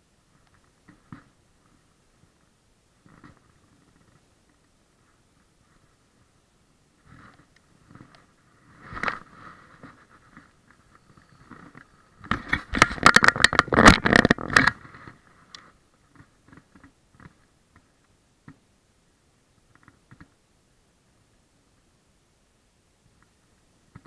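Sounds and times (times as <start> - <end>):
scraping close to microphone: 7.0 - 15.8
rapid clicks and scrapes: 7.0 - 17.8.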